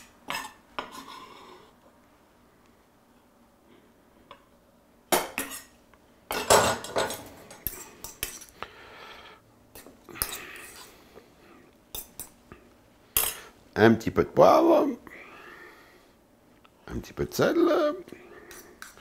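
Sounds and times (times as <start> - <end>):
fork scraping a metal bowl: 0.3 - 1.4.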